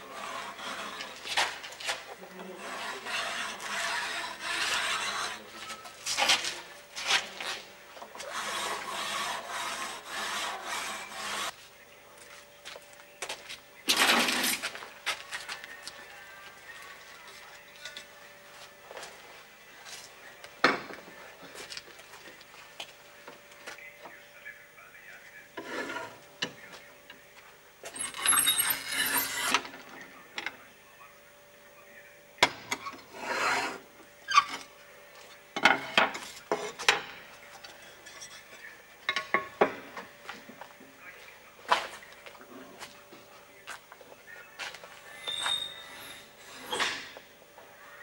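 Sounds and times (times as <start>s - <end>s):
masonry scraping: 0.0s - 11.6s, 13.3s - 16.2s, 25.6s - 26.9s, 27.8s - 30.1s, 32.7s - 34.7s, 35.6s - 40.7s, 44.6s - 47.3s.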